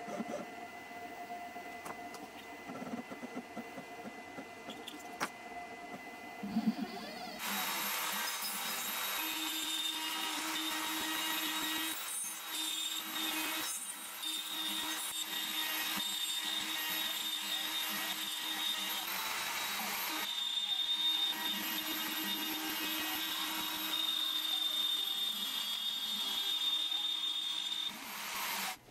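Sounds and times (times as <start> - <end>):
cnc router spindle cutting wood: 6.0 - 28.8.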